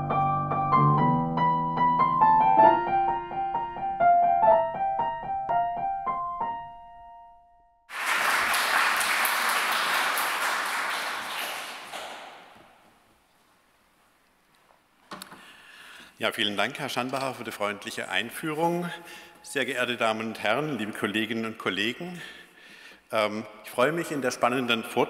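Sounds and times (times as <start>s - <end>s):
piano jingle: 0.0s - 7.8s
audience applauding: 7.9s - 12.8s.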